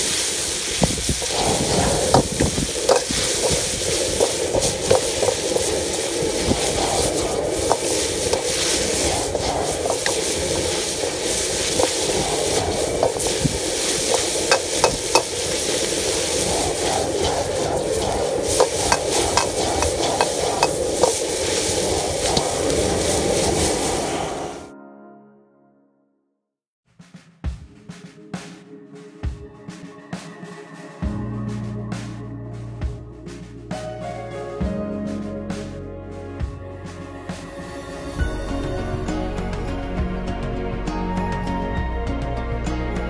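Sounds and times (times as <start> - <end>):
meat sizzling in a wok: 0.0 - 24.4.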